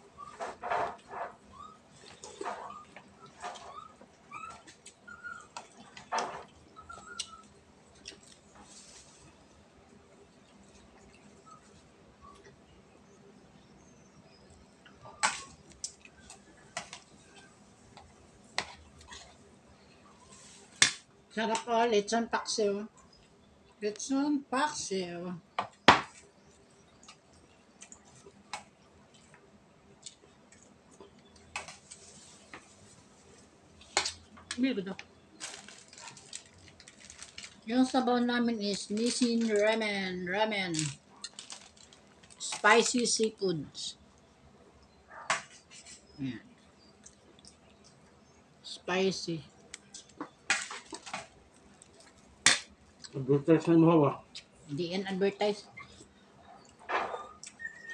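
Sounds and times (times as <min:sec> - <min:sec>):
faint animal chirps: 0:06.7 - 0:07.6, 0:55.7 - 0:57.9
chewing and lip smacking: 0:47.0 - 0:48.1, 0:55.8 - 0:57.9.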